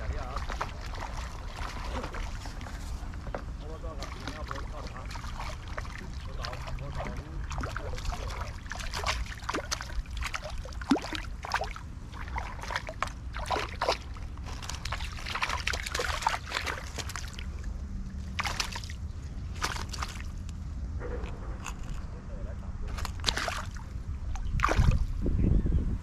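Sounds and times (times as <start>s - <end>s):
fish splashing in water: 0.0s - 2.8s, 3.9s - 20.5s, 22.9s - 25.1s
clicks and rustles in grass: 12.6s - 17.4s.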